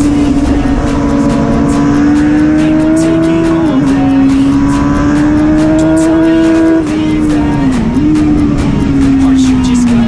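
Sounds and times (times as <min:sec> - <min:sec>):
motorcycle engine at high revs: 0:00.0 - 0:10.0.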